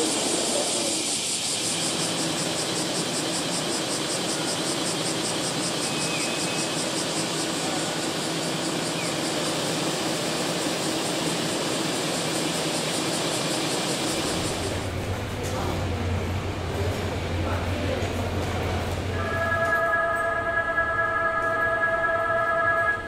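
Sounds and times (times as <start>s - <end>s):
high pulsing hiss: 0.0s - 18.0s
road traffic hum: 14.1s - 19.2s.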